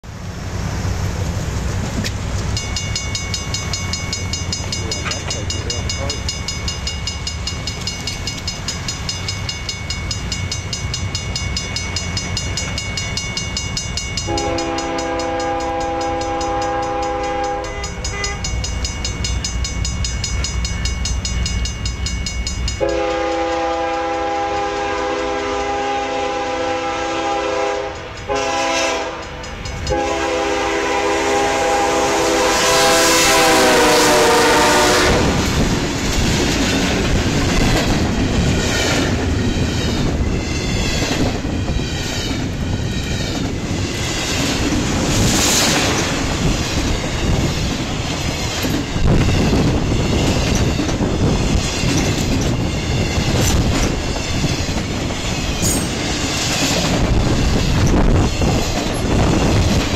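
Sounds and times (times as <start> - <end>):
freight train rumble: 0.0 - 59.9
high ringing tone: 2.6 - 23.5
locomotive horn blasts: 14.3 - 18.5, 22.8 - 35.4.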